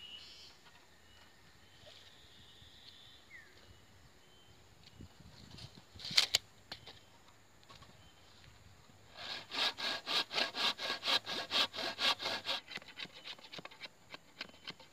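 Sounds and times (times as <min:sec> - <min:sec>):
tape measure blade snapping back: 0:06.0 - 0:06.4.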